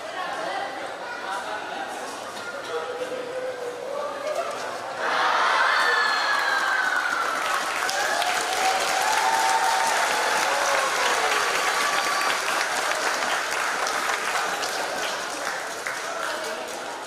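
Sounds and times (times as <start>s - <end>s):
crowd applauding: 6.0s - 17.0s.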